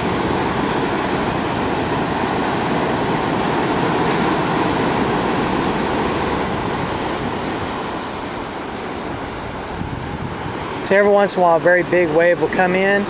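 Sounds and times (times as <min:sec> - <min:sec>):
ocean surf breaking on rocks: 0:00.0 - 0:13.0.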